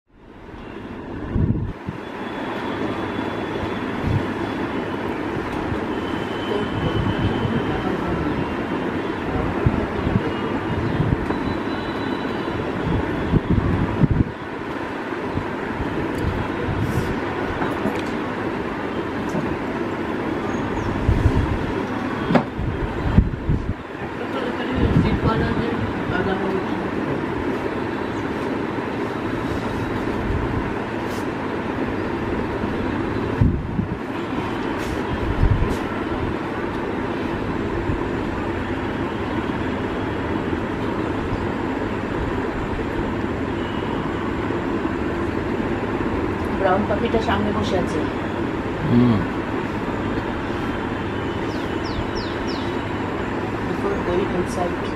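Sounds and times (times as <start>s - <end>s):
low rumbling background noise: 0.1s - 54.9s.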